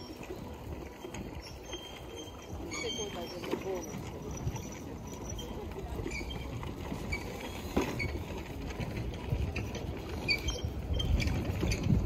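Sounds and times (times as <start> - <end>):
faint high squeaks: 0.0 - 8.5, 9.6 - 12.0
wind buffeting microphone: 3.9 - 12.0.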